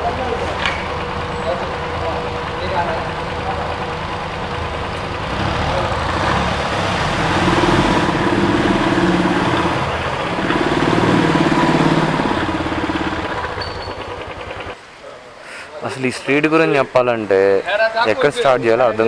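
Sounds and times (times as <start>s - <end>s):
deep engine drone: 0.0s - 14.8s
street traffic: 0.0s - 19.0s.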